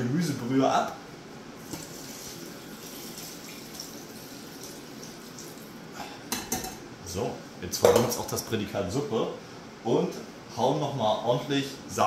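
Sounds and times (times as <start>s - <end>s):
broth pouring into a pot: 1.6s - 5.9s.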